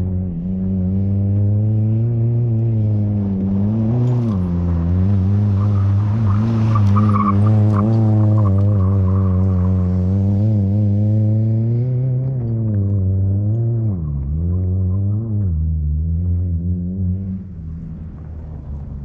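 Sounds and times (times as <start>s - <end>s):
car engine running hard: 0.0s - 19.0s.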